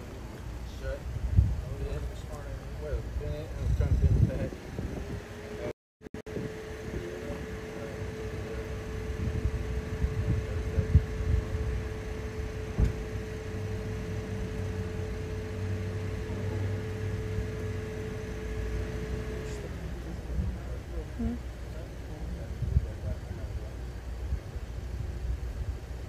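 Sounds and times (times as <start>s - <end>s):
steady mechanical hum: 0.0s - 26.0s.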